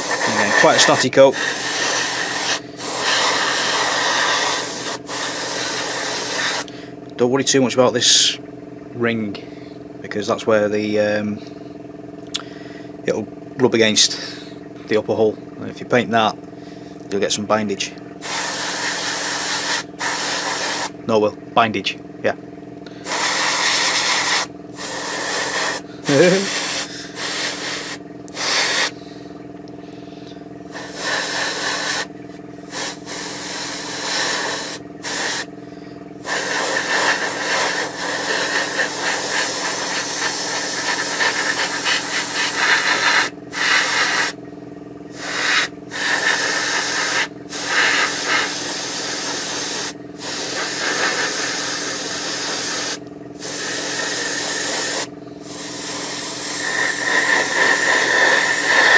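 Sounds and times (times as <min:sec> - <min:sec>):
airbrush spraying hiss: 0:00.0 - 0:06.7, 0:18.2 - 0:21.0, 0:23.0 - 0:29.0, 0:30.7 - 0:32.1, 0:32.7 - 0:35.5, 0:36.2 - 0:44.4, 0:45.1 - 0:58.9
steady hum: 0:00.0 - 0:58.9.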